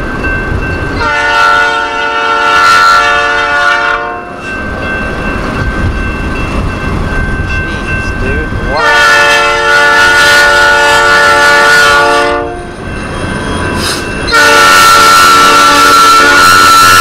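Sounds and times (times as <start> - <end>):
locomotive air horn: 1.0 - 4.4, 8.7 - 12.7, 14.3 - 17.0.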